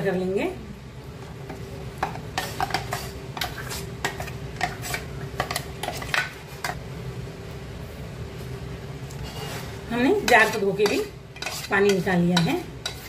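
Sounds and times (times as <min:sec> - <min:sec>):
spoon scraping steel jar: 0:11.4 - 0:13.0.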